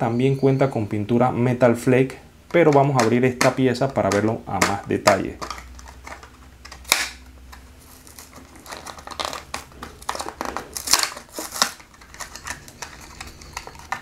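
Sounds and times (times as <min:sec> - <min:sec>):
plastic blister crinkling: 0:02.5 - 0:14.0
cardboard ripping: 0:07.8 - 0:14.0.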